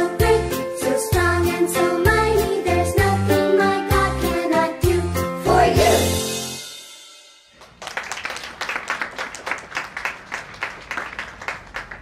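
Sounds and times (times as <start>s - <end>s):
children's worship song: 0.0s - 6.3s
small audience clapping: 7.6s - 12.0s.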